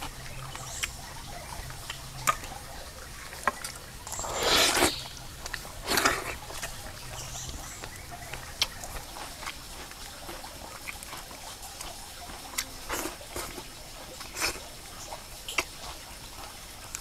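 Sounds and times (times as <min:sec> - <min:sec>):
wet chewing and lip smacks: 0:00.0 - 0:17.0
mouth clicks: 0:03.4 - 0:09.6.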